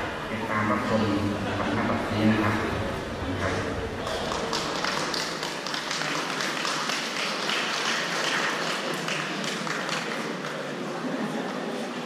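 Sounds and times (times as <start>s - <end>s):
audience applauding: 3.4s - 10.8s.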